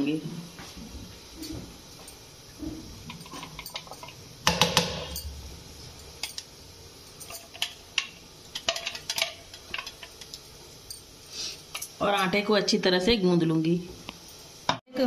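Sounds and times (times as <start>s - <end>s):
metal jar clattering on plate: 3.1s - 5.3s.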